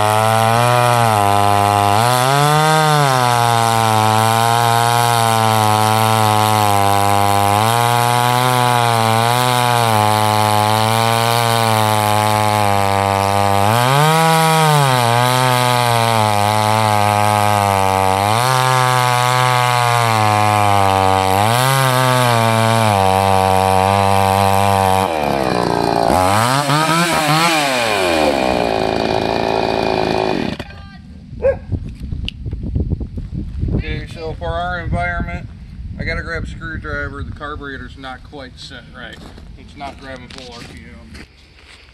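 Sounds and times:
chainsaw cutting log: 0.0s - 30.8s.

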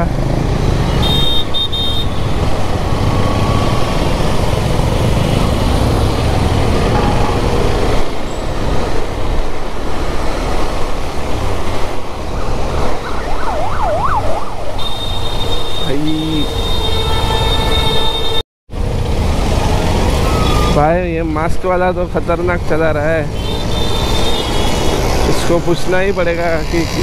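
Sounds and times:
motorcycle engine and road noise: 0.0s - 27.0s
siren wailing: 12.2s - 18.3s.

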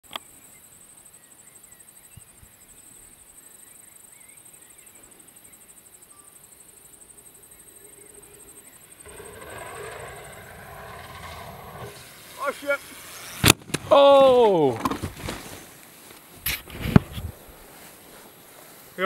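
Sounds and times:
insects trilling: 0.1s - 16.4s
faint bird chirps: 0.2s - 10.4s.

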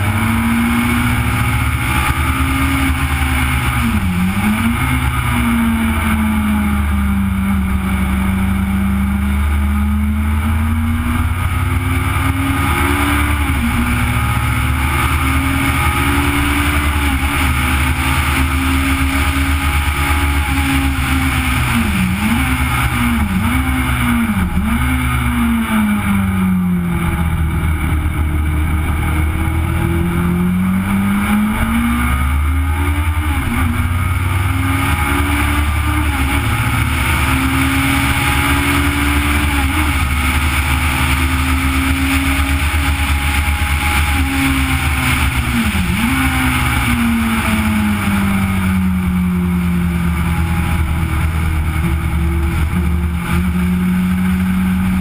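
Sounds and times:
racing engine revving: 0.0s - 55.0s.

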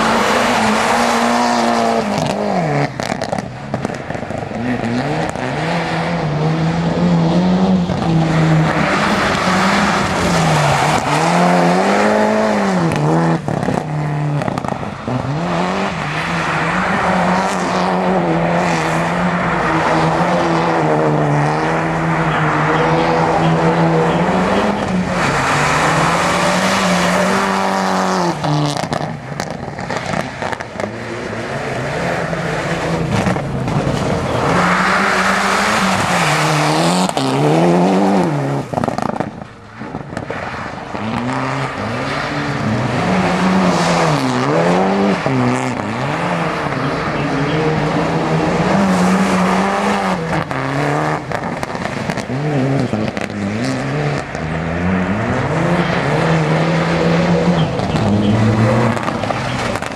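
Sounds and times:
rally car engine revving: 0.0s - 59.9s.

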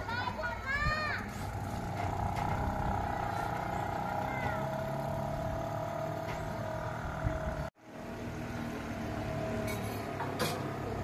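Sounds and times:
outboard motor running: 1.1s - 7.7s.

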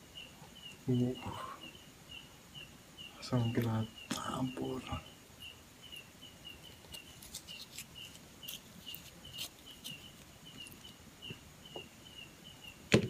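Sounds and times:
steady high chirping: 0.0s - 12.9s.

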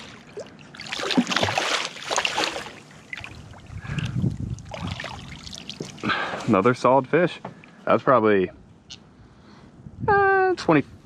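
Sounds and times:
fish splashing at water surface: 0.0s - 6.4s.

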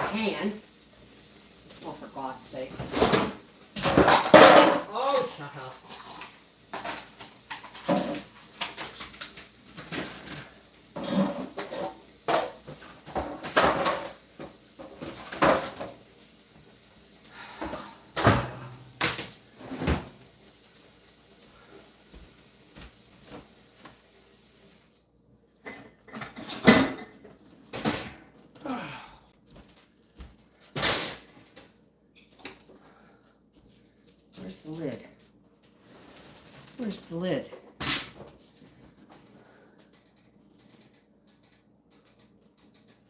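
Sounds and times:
pots and pans clattering: 2.6s - 16.1s, 17.4s - 20.2s, 25.6s - 28.4s.

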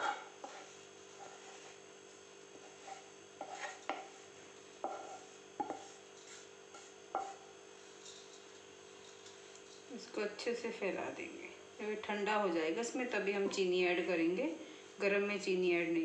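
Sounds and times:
spatula scraping and knocking pan: 0.0s - 9.9s
faint steady hum: 0.0s - 16.0s.

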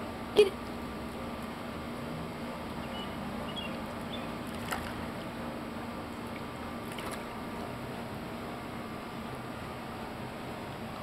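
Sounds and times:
background hum and hiss: 0.0s - 11.0s.

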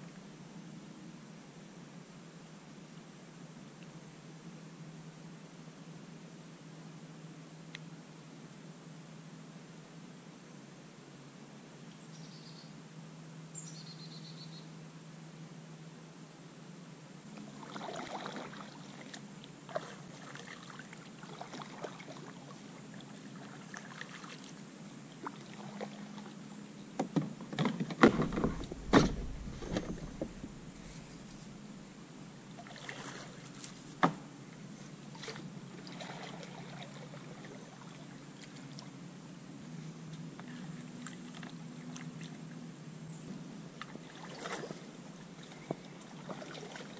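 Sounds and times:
kayak paddle strokes swishing: 17.4s - 26.3s, 28.0s - 32.0s, 32.6s - 34.1s, 43.9s - 46.9s
sharp knocks: 28.0s - 31.3s
low thump: 28.0s - 31.8s.

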